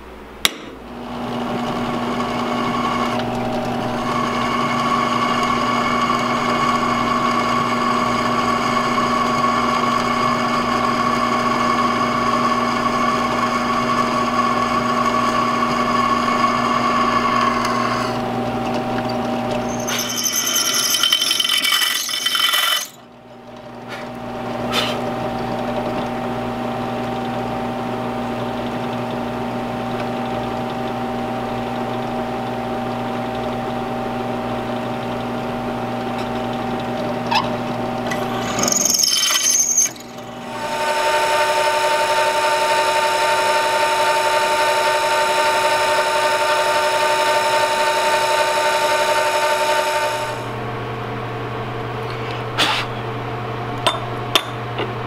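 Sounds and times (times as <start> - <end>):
drill press drilling steel: 1.2 - 23.0, 37.0 - 50.6.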